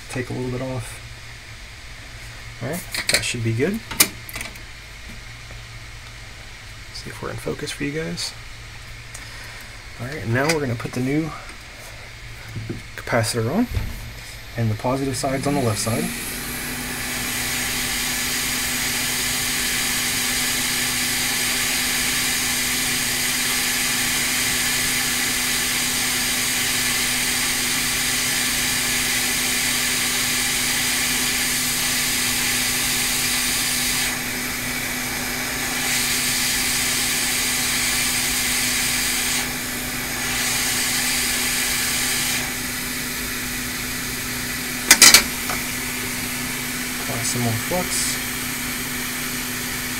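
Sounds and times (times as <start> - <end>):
low steady hum: 0.0 - 18.0
hot air blower hissing: 9.0 - 49.9.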